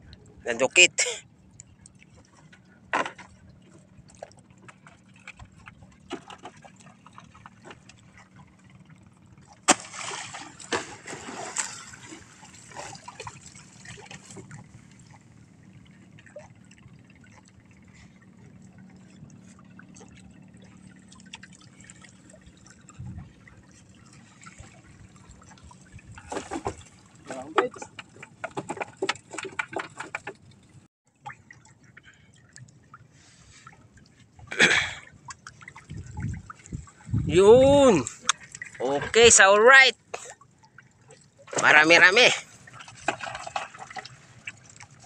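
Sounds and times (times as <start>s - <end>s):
water trickling and splashing: 0.0s - 45.0s.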